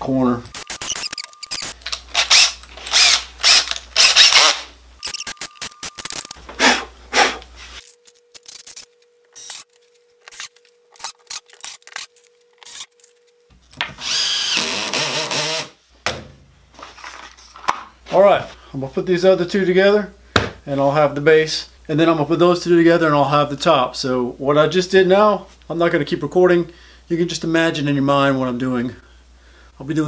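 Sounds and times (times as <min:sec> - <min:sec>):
cordless drill driving screws: 0:00.6 - 0:05.4, 0:14.0 - 0:15.7.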